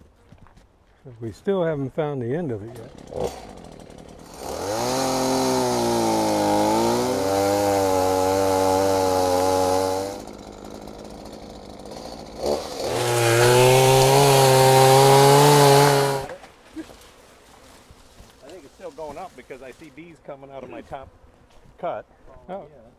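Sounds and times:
chainsaw cutting wood: 0:02.5 - 0:19.2.

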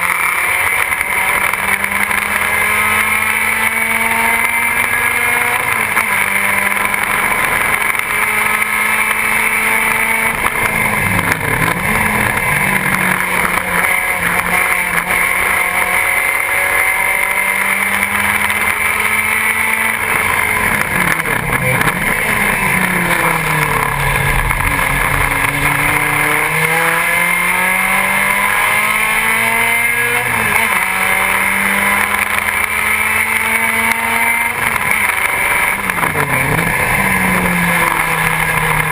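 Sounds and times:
race car engine at high revs: 0:00.0 - 0:38.9.

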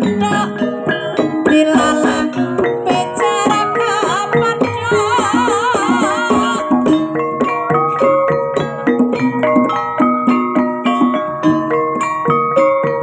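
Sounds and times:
woman singing with vibrato: 0:00.0 - 0:06.8
gamelan metallophones and gongs: 0:00.0 - 0:13.0
hand drum: 0:00.0 - 0:13.0.

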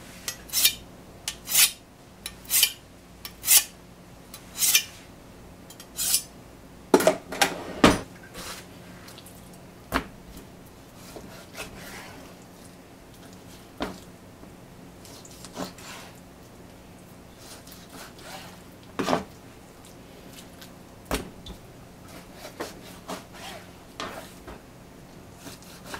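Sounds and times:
knife scraping on whetstone: 0:00.3 - 0:01.8, 0:02.4 - 0:03.7, 0:04.6 - 0:05.0, 0:05.9 - 0:06.3, 0:11.0 - 0:12.2, 0:17.4 - 0:18.6, 0:22.1 - 0:24.4.

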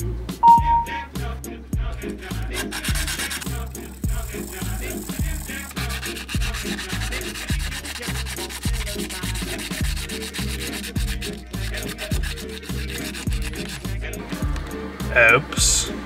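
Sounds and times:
background music with beat: 0:00.0 - 0:16.0
sandpaper rubbing on metal: 0:02.3 - 0:14.1.

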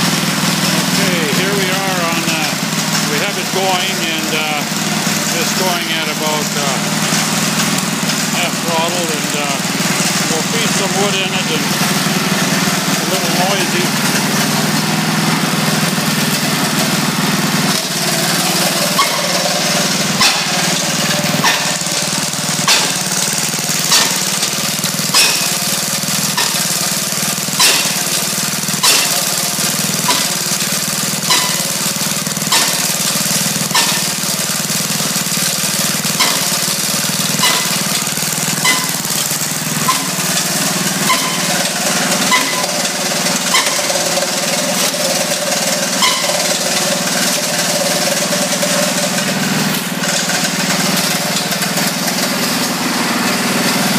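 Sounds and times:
small engine running: 0:00.0 - 0:53.9
blade chopping wood: 0:20.0 - 0:45.4.

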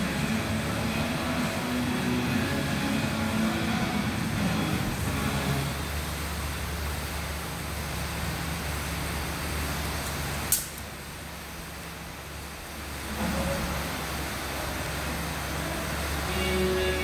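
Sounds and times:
low room hum: 0:00.0 - 0:17.0
sharp click: 0:10.5 - 0:10.8.

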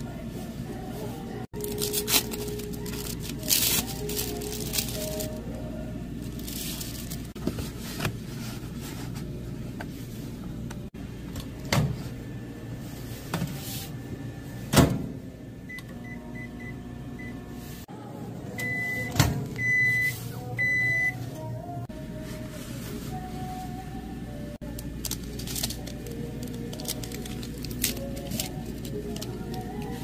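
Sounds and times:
microwave humming: 0:00.0 - 0:30.0
microwave long beeps: 0:15.6 - 0:17.6, 0:18.5 - 0:21.3.

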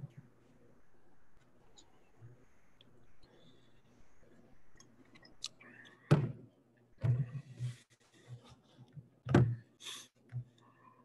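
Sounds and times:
low steady hum: 0:00.0 - 0:07.8.

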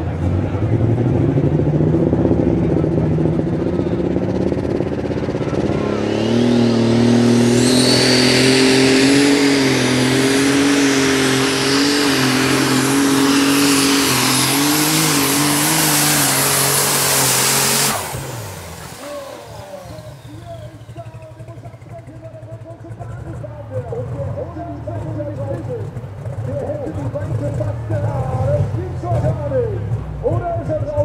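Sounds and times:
tractor engine at full throttle: 0:00.0 - 0:31.0.

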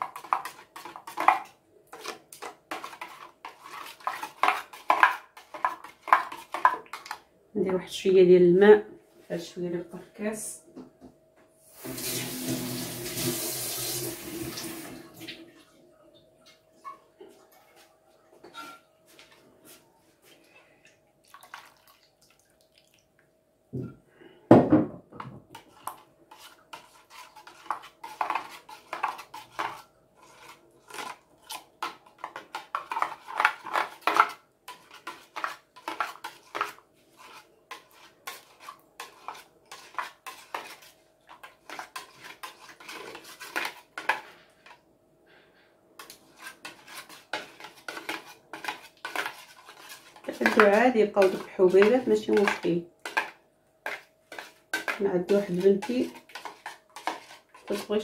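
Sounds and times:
metal spoon scraping a sieve: 0:00.0 - 0:07.2, 0:25.6 - 0:44.2, 0:46.0 - 0:58.0.

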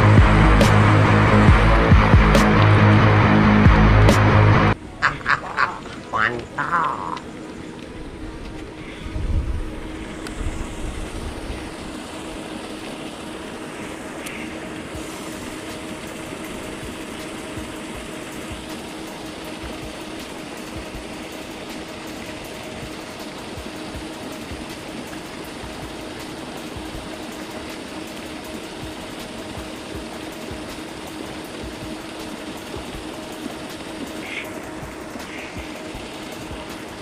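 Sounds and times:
low mechanical hum: 0:00.0 - 0:37.0.

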